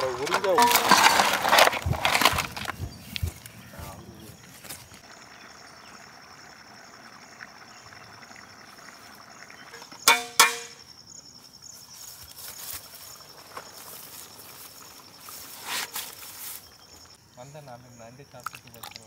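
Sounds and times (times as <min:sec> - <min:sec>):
iron pot clanking: 0:00.0 - 0:01.6, 0:09.7 - 0:10.8
high insect trill: 0:00.0 - 0:19.0.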